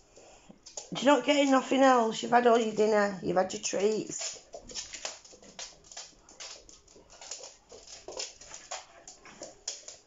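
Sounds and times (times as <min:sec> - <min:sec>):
dog claws clicking on floor: 0:00.1 - 0:10.0.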